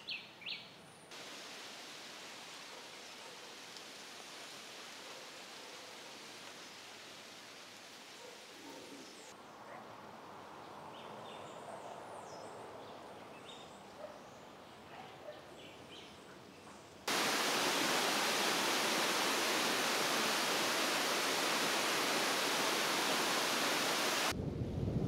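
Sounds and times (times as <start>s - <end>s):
waterfall pouring over rocks: 1.1s - 8.2s, 17.1s - 24.4s.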